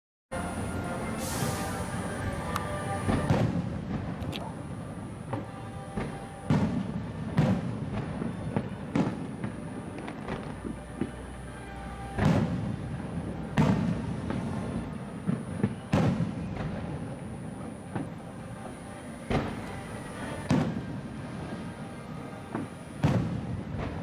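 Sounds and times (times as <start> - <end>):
fireworks booming with echo: 0.4 - 24.0
small fireworks pops: 5.2 - 11.3, 12.2 - 12.8, 15.2 - 19.8, 22.5 - 24.0.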